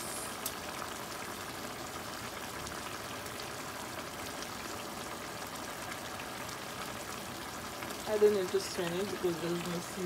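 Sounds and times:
sauce bubbling in a pan: 0.0 - 10.0.

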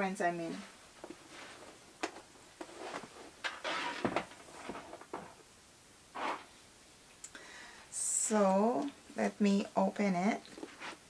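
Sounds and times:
handbags rustling: 1.1 - 5.3.

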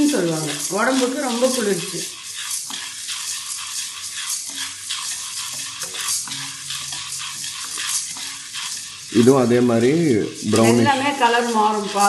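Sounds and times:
grains scraping and rattling in pan: 0.0 - 12.0.

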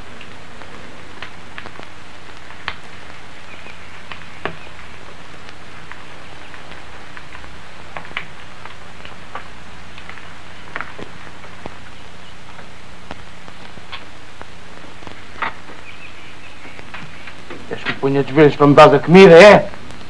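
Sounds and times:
low hum: 0.0 - 19.1
steady hiss: 0.0 - 20.0
small clicks and ticks: 0.1 - 15.9.

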